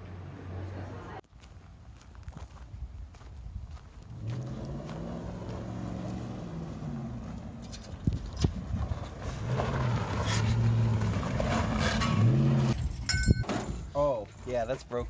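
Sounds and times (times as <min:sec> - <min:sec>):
truck engine revving: 0:04.1 - 0:12.9.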